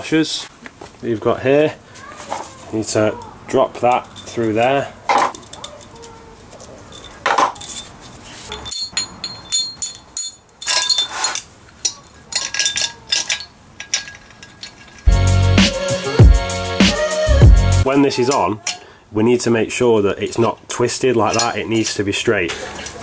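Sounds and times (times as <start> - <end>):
metal clinking and scraping: 2.3 - 15.1, 21.2 - 23.0
background music: 15.1 - 17.9.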